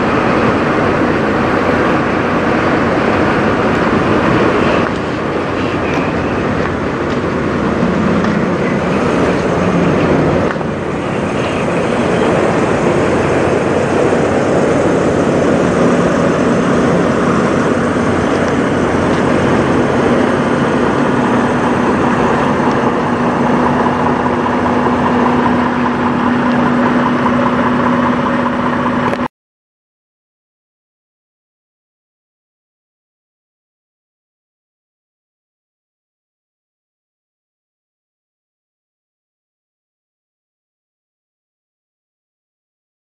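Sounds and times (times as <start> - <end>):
diesel truck engines idling: 0.0 - 29.3
steady hum: 0.0 - 29.3.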